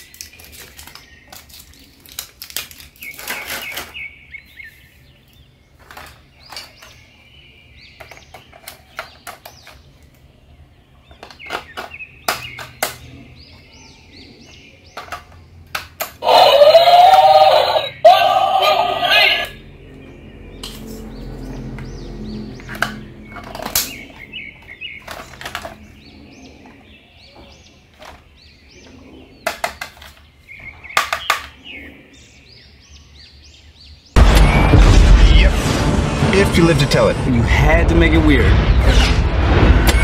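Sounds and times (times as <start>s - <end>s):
batteries clattering on plastic: 0.0s - 4.0s, 5.8s - 7.0s, 25.0s - 25.8s
loud drawn-out call: 16.2s - 19.6s.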